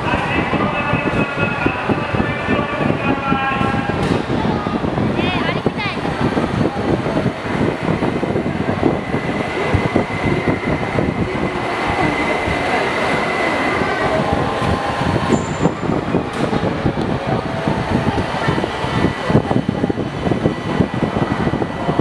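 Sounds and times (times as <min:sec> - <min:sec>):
crane mechanical rumble: 0:00.0 - 0:22.0
thin high whine: 0:08.0 - 0:22.0.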